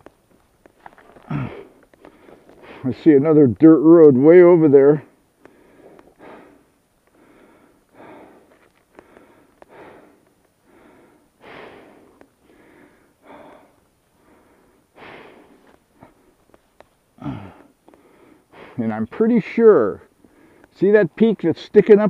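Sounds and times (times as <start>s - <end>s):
person breathing inside helmet: 1.0s - 2.9s, 5.4s - 18.8s, 20.2s - 20.7s.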